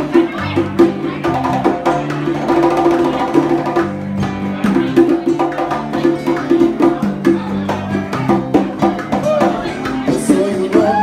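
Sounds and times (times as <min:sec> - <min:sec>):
acoustic guitar playing: 0:00.0 - 0:11.0.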